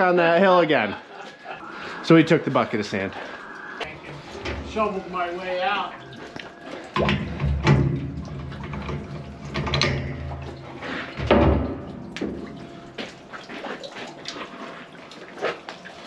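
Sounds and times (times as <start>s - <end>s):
low hum: 1.0s - 13.4s
wrenches clanking on metal tank: 7.0s - 12.6s.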